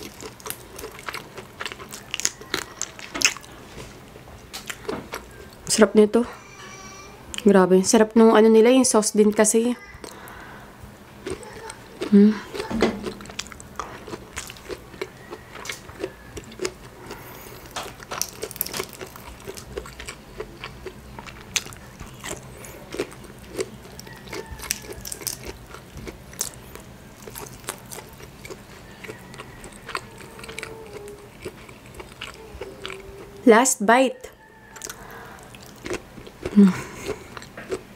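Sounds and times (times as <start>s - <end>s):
faint low hum: 0.0s - 37.9s
wet chewing and lip smacks: 11.3s - 33.1s, 34.7s - 37.8s
shrimp shell cracking: 17.7s - 19.8s.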